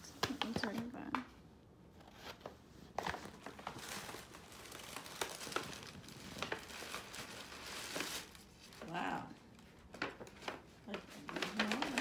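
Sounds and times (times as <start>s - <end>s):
paper bag crinkling: 2.9s - 12.0s.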